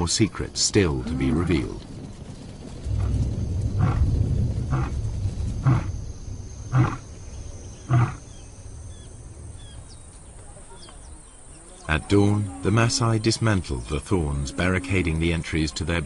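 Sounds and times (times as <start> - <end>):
lion roaring: 2.9 - 6.0, 6.7 - 7.1, 7.8 - 8.3
lion grunting: 3.8 - 5.0, 5.6 - 6.0, 6.7 - 7.1, 7.8 - 8.4.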